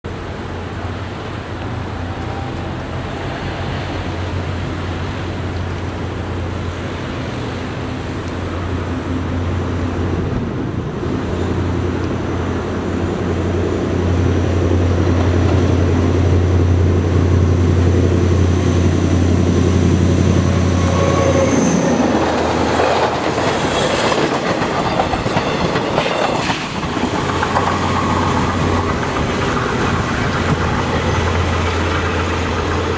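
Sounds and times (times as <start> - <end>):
locomotive engine drone: 0.1 - 32.9
train wheels clattering on rails: 20.9 - 32.9.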